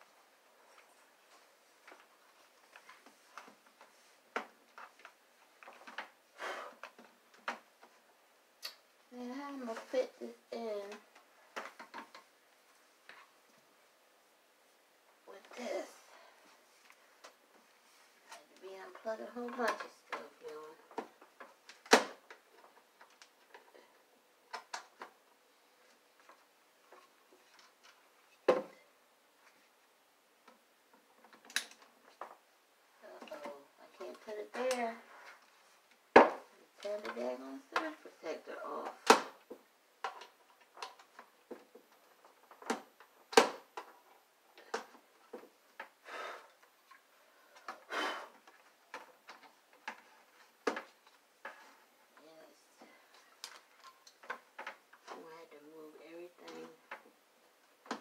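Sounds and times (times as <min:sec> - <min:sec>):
plugs and cords clicking and scraping: 0:30.4 - 0:32.4, 0:33.1 - 0:36.0, 0:36.8 - 0:46.0, 0:46.6 - 0:58.0
plugs and cords clicking: 0:31.2 - 0:32.3.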